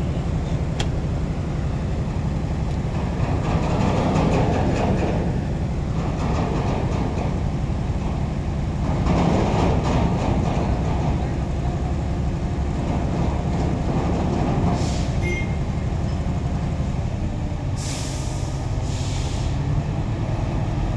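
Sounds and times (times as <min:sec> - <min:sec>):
diesel engines running: 0:00.0 - 0:20.9
air hisses: 0:17.8 - 0:19.6.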